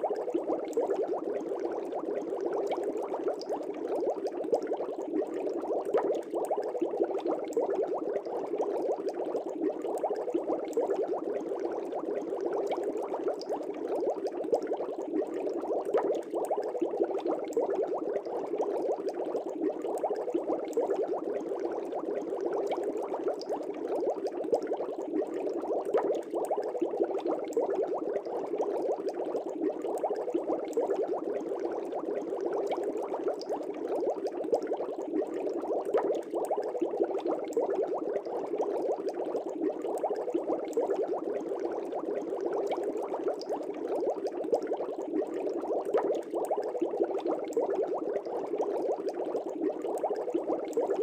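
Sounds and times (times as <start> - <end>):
aquarium water bubbling: 0.0 - 51.0.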